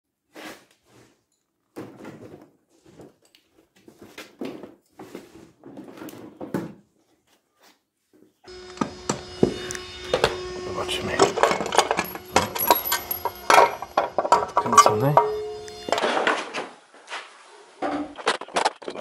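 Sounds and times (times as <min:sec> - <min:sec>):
steady hum: 0:08.5 - 0:16.0.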